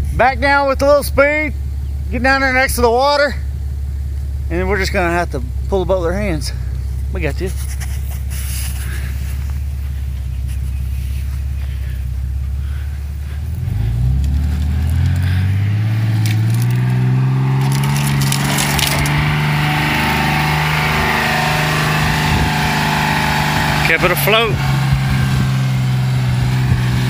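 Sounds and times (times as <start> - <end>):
pickup truck engine revving: 0.0 - 27.0
sharp crackles: 6.9 - 19.4.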